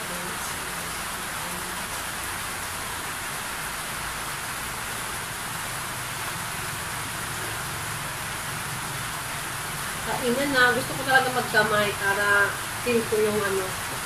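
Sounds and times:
steady rain hiss: 0.0 - 14.0.

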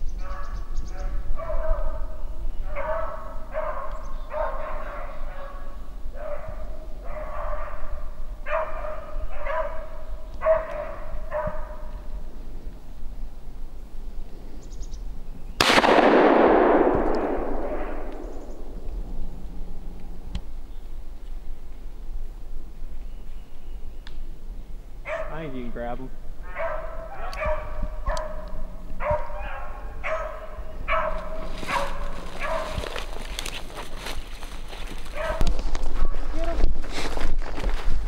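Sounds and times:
shotgun shot echoing: 15.6 - 18.9
dog baying: 26.4 - 33.2, 35.1 - 35.4.

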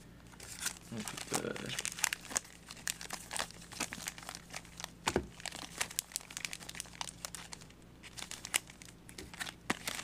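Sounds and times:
foil wrappers crinkling: 0.4 - 10.0.

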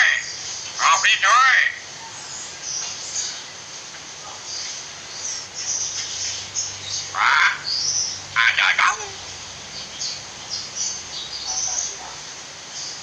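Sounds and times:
myna harsh call: 8.4 - 9.3.

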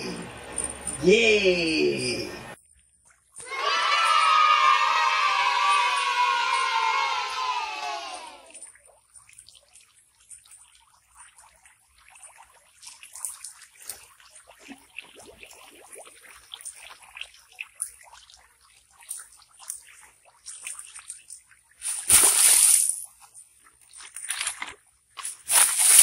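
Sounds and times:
water dripping into pond: 8.5 - 21.8.

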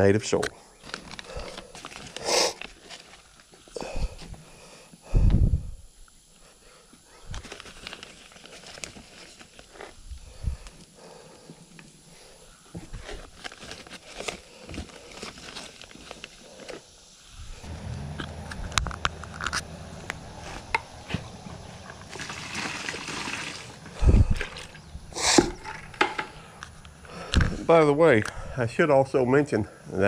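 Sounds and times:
low steady hum: 0.6 - 28.7
hands crumbling soil: 18.2 - 28.3.

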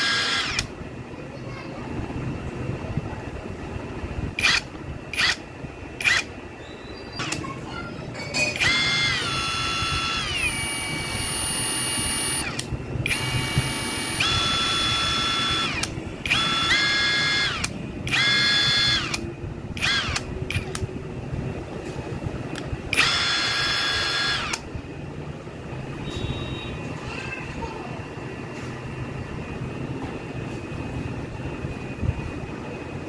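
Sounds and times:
cordless impact wrench whine: 0.0 - 0.7, 4.4 - 6.4, 8.5 - 20.9, 22.9 - 24.7.

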